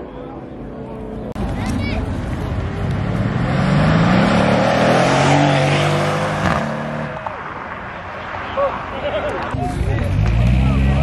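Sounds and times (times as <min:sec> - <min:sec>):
car accelerating past: 0:02.6 - 0:08.7.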